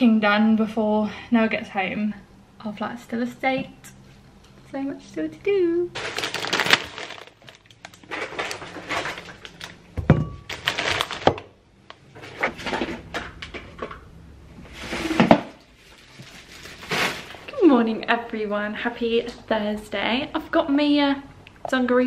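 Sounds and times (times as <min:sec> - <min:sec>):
plastic bags rustling: 0:05.9 - 0:14.0, 0:14.6 - 0:17.8.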